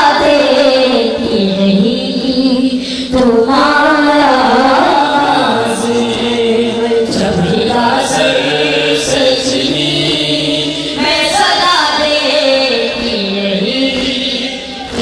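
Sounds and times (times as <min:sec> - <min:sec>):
boys chanting a lament: 0:03.8 - 0:15.0.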